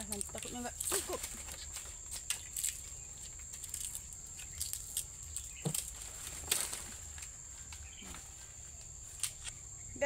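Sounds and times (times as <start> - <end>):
stalks snapping: 0.0 - 7.3, 9.2 - 9.5
leaves rustling: 0.0 - 9.8.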